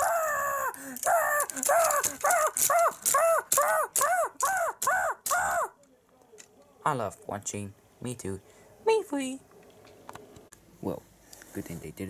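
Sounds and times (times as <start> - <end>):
child wailing: 0.0 - 5.8.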